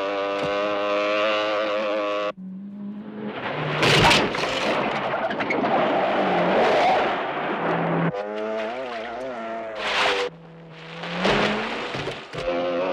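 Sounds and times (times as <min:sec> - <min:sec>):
motorcycle engine revving high: 0:00.0 - 0:03.9
car skidding on wet mud: 0:03.0 - 0:12.9
sharp crash: 0:03.1 - 0:08.0.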